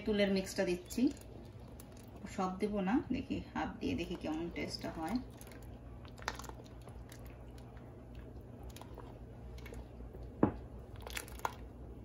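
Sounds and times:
low steady hum: 0:00.0 - 0:12.0
spatula stirring thick liquid: 0:03.9 - 0:11.7
wet squelching and scraping: 0:04.0 - 0:10.2, 0:10.8 - 0:11.7.

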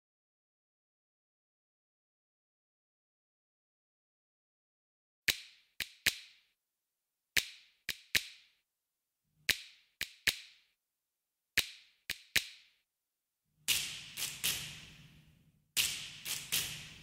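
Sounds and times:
finger snaps: 0:05.3 - 0:06.4, 0:07.4 - 0:08.5, 0:09.5 - 0:10.6, 0:11.6 - 0:12.7.

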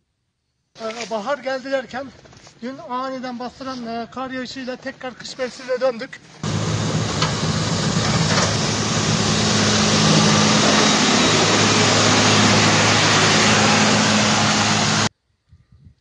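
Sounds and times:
bucket pushing snow hiss: 0:06.4 - 0:15.1
diesel engine running: 0:06.4 - 0:15.1.

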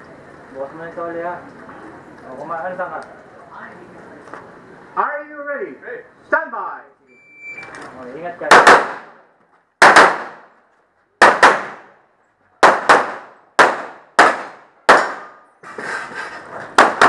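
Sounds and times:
pistol shots: 0:08.4 - 0:09.2, 0:09.8 - 0:10.5, 0:11.2 - 0:12.0, 0:12.6 - 0:15.4, 0:16.8 - 0:17.0.

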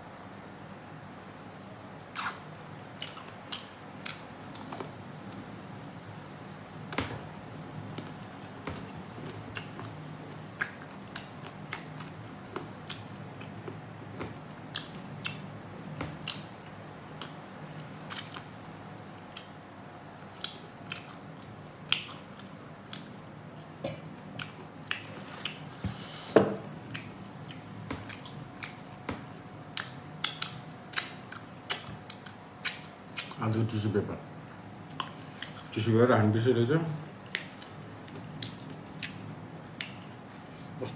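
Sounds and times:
chewing with mouth smacks: 0:02.1 - 0:05.4, 0:08.0 - 0:15.5, 0:16.1 - 0:18.5, 0:20.2 - 0:25.9, 0:26.8 - 0:33.4, 0:34.9 - 0:35.7, 0:37.0 - 0:40.5.

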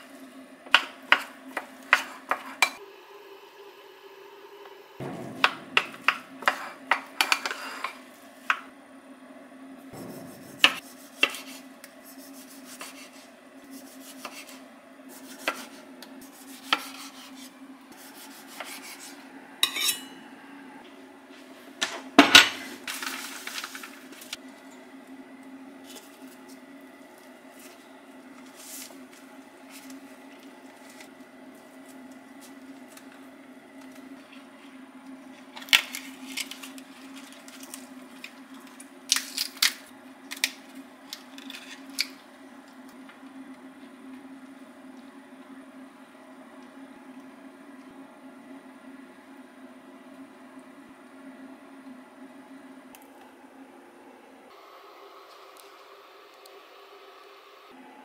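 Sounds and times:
low steady hum: 0:02.6 - 0:12.6
knife slicing tomato on board: 0:10.0 - 0:11.6, 0:13.8 - 0:14.6, 0:15.2 - 0:15.8, 0:16.4 - 0:17.5
utensils clinking on dishes: 0:19.6 - 0:20.2.

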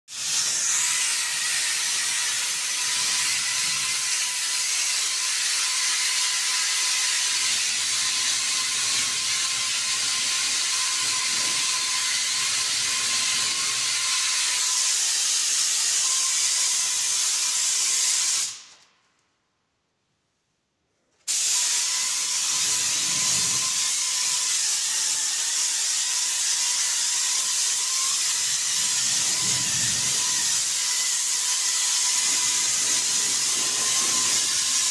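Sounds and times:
paint spray gun hissing: 0:21.3 - 0:23.5, 0:28.1 - 0:34.9.

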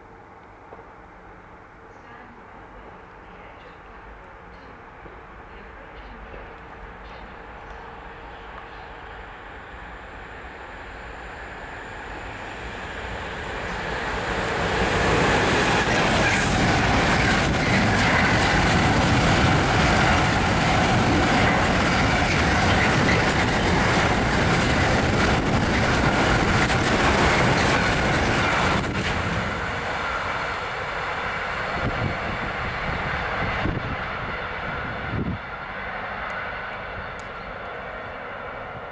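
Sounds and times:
diesel locomotive running: 0:04.4 - 0:38.9
wagons rumbling and clattering on rails: 0:13.4 - 0:30.8.

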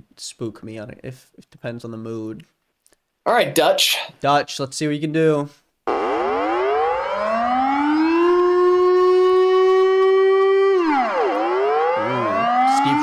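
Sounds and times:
wailing siren: 0:05.9 - 0:13.0.

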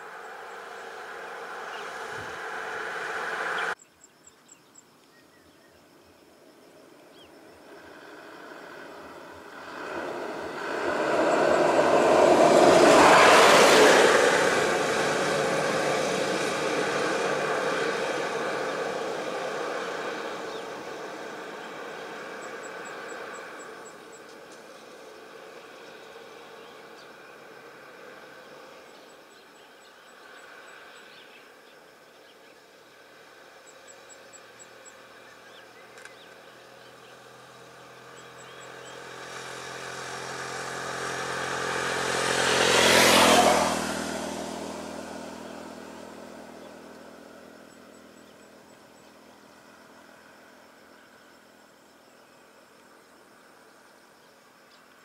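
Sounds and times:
motor vehicle passing: 0:00.0 - 0:03.8, 0:07.4 - 0:29.2, 0:32.9 - 0:51.3.

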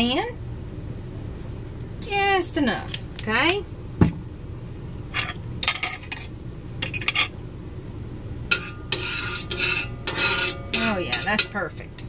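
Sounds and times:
utensil scraping in skillet: 0:08.5 - 0:11.7.

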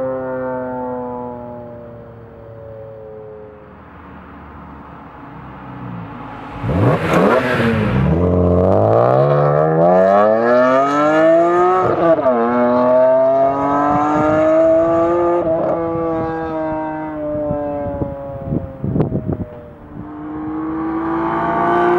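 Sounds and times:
car engine accelerating past: 0:04.3 - 0:18.7, 0:19.9 - 0:21.9.

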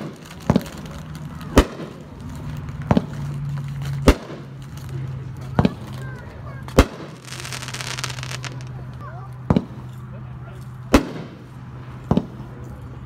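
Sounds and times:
firework crackling: 0:00.0 - 0:09.0
firework reports: 0:00.0 - 0:09.9, 0:10.9 - 0:12.4.

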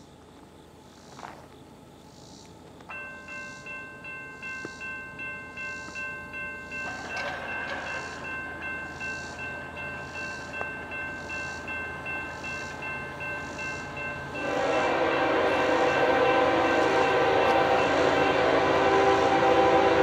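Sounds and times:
locomotive horn blast: 0:13.8 - 0:20.0.

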